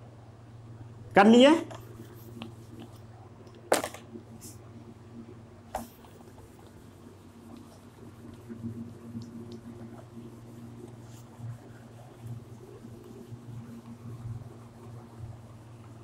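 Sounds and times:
steady low hum: 0.0 - 16.0
duster rubbing on whiteboard: 1.7 - 3.0, 5.8 - 16.0.

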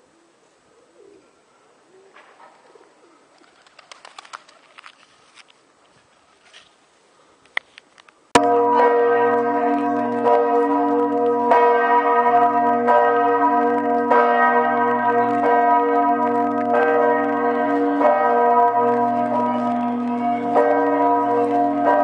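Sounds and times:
large bells ringing: 8.4 - 22.0.

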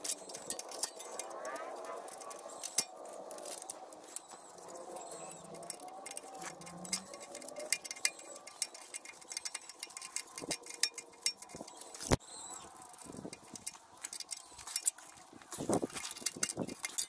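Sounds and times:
metallic taps: 0.0 - 12.2
ratchet wrench clicking: 0.0 - 12.2, 16.0 - 17.0.

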